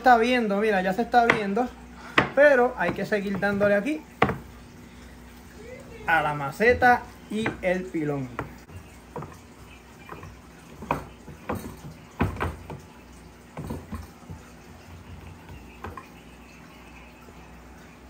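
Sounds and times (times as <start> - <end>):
wooden pestle pounding food: 2.2 - 4.5, 6.6 - 16.1.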